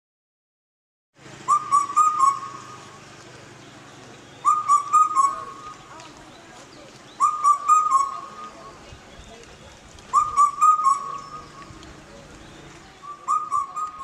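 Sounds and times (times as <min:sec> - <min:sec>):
bird-like whistled call: 0:01.4 - 0:03.0, 0:04.3 - 0:05.9, 0:07.1 - 0:08.8, 0:10.1 - 0:11.8, 0:12.4 - 0:14.0.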